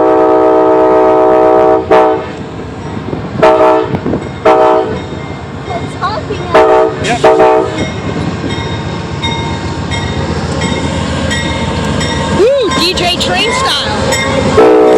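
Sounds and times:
locomotive air horn chord: 0.0 - 2.4, 3.4 - 5.0, 6.5 - 7.8, 14.5 - 14.9.

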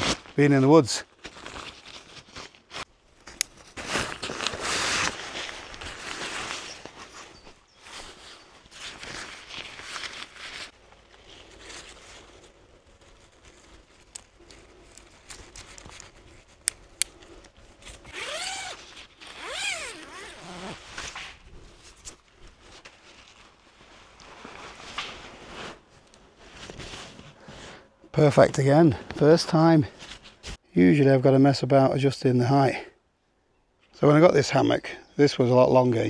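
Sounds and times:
camping gear handling: 1.2 - 27.8
zipper pulls: 18.0 - 21.1.

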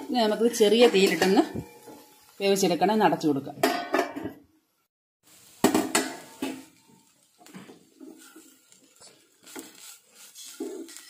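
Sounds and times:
cookware clattering: 0.4 - 2.2, 3.6 - 4.5, 5.6 - 8.7
wooden spatula scraping pan: 6.3 - 11.0.

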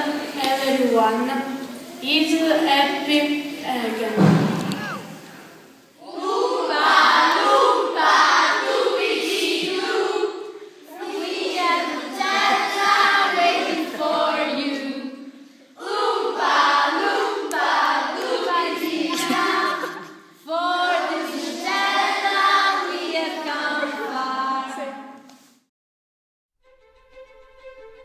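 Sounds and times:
children singing in unison: 5.9 - 25.2.

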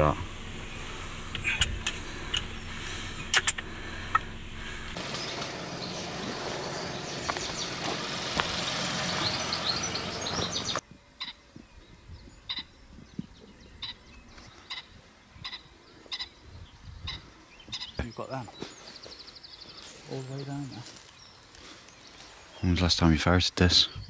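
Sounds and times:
short bird calls: 0.0 - 8.0, 13.7 - 16.4
steady rushing noise: 0.0 - 10.8
dense birdsong: 0.0 - 24.0.

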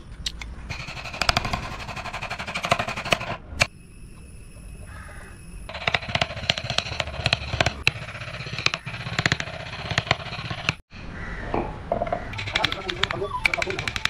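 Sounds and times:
mallet tapping chisel into wood: 12.0 - 14.0.

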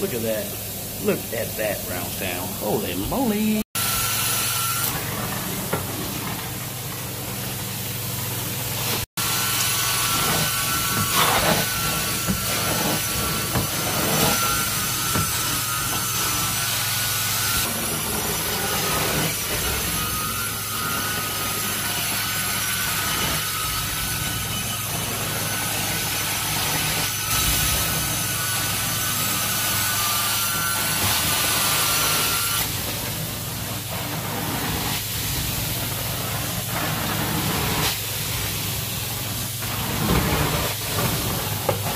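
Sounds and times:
extraction machine hum and suction: 1.0 - 29.8.

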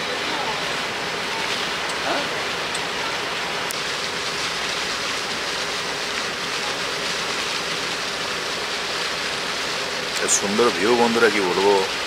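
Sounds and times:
water rushing along boat hull: 0.0 - 12.0.

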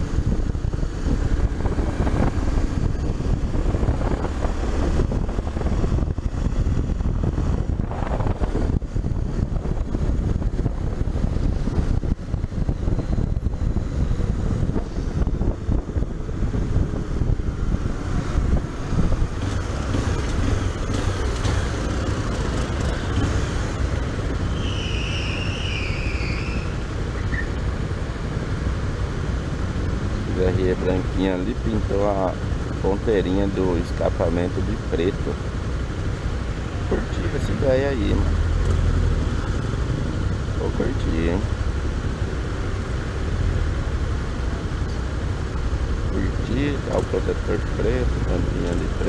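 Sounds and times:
motorcycle engine running: 0.0 - 24.6
wind rushing over microphone: 0.0 - 49.0
high wavering squeal: 24.5 - 27.6.

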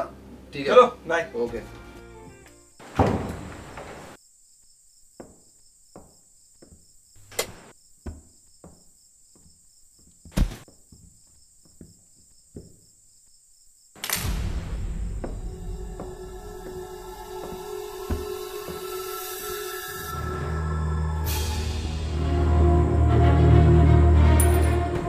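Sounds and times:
crickets chirping: 2.2 - 24.7
footsteps and knocks on hard floor: 5.2 - 6.9, 8.0 - 12.8, 17.4 - 18.8
low rumbling drone: 14.2 - 24.4.

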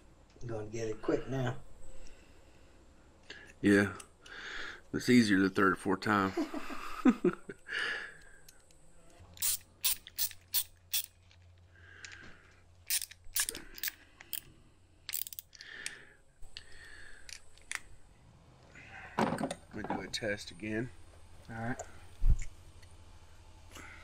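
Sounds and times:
ratchet wrench clicking: 9.4 - 11.2, 12.9 - 14.5, 15.1 - 15.6.

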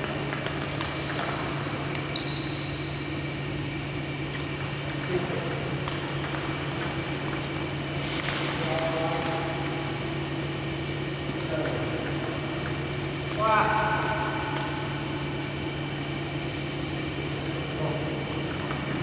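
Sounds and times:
electric fan humming: 0.0 - 19.0
brief high squeak: 2.1 - 3.4.

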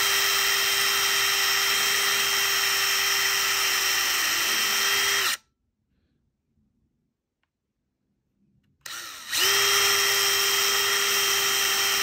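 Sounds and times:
power drill whining: 0.0 - 5.4, 8.8 - 12.0.

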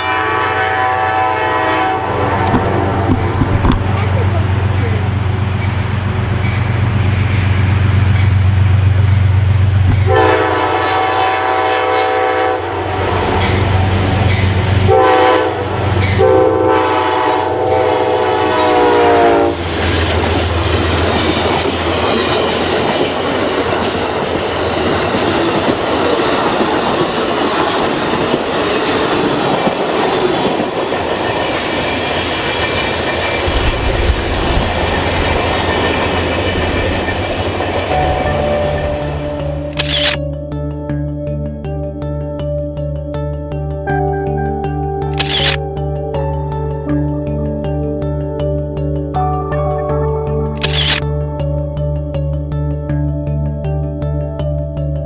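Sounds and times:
train horn blasts: 0.0 - 3.0, 10.0 - 14.0, 14.8 - 19.7
locomotive engine drone: 0.0 - 42.1, 43.6 - 54.8
train coaches rumbling and clattering: 0.8 - 11.4, 12.8 - 40.0
high wheel squeal: 22.0 - 25.3.

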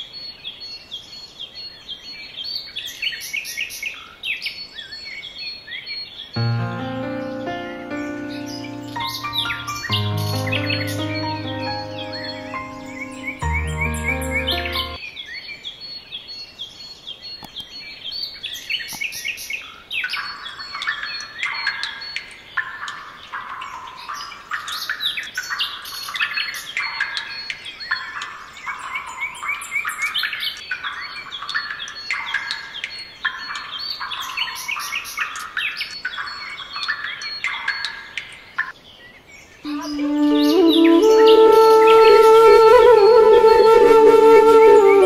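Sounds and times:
music: 6.4 - 15.0, 39.7 - 45.0
birds chirping and singing: 7.3 - 15.0, 39.7 - 43.5.

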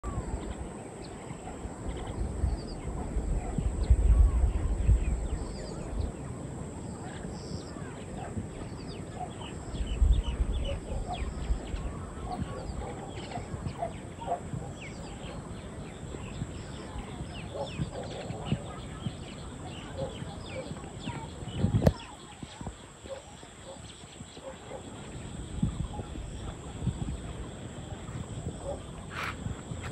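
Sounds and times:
wind buffeting the microphone: 0.0 - 29.9
birds chirping and calling: 7.0 - 27.6.

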